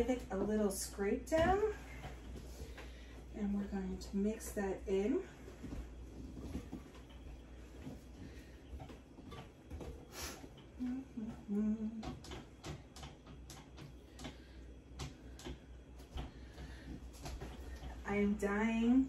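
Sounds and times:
person humming: 10.8 - 12.1.

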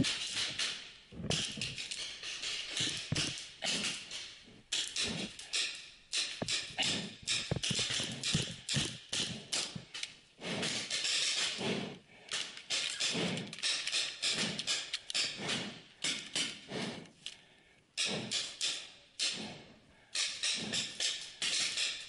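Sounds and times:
paintball markers firing: 2.7 - 11.0, 12.4 - 16.9.

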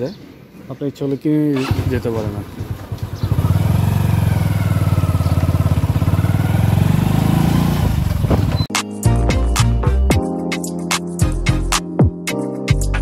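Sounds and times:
motorcycle engine pulsing: 1.6 - 8.7
background music: 8.7 - 13.0.

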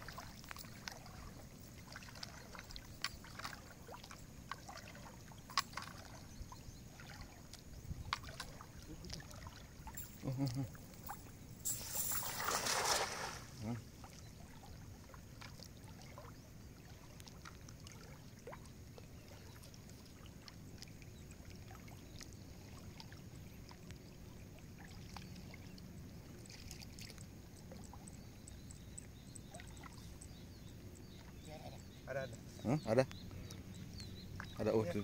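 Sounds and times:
flowing water: 0.0 - 35.0
small ticks and splashes: 0.0 - 35.0
net splashing into water: 11.7 - 13.8.

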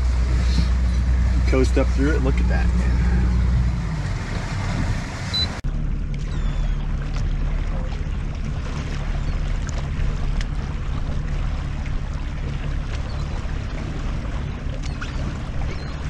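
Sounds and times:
wind buffeting microphone: 0.0 - 5.6
water lapping around boat: 0.0 - 16.0.

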